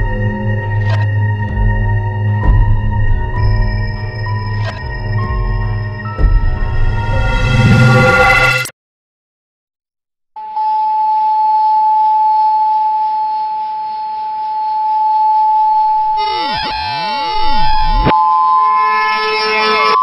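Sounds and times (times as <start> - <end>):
loud eerie music: 0.0 - 8.7
high electronic tone: 6.4 - 8.7
sweeping tones: 6.4 - 8.7.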